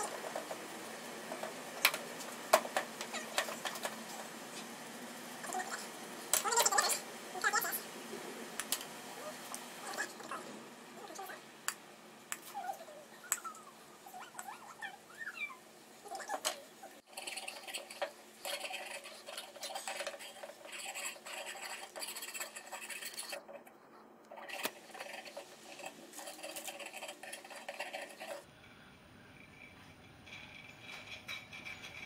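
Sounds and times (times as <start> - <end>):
metal filing strokes: 17.0 - 23.4, 24.4 - 28.5.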